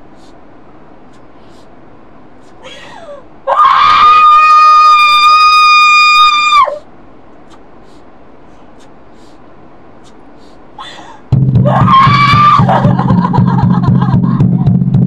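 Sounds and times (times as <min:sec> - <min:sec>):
loud high steady cry: 0:02.4 - 0:08.1, 0:10.0 - 0:13.8.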